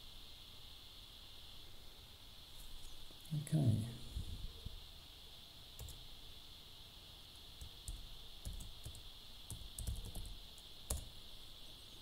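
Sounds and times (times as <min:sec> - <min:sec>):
faint laptop keystrokes: 0:07.6 - 0:11.1.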